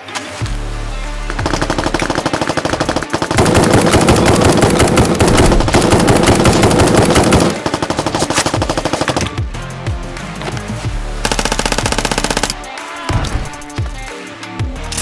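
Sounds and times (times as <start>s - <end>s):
automatic gunfire: 1.3s - 9.4s, 11.2s - 12.8s.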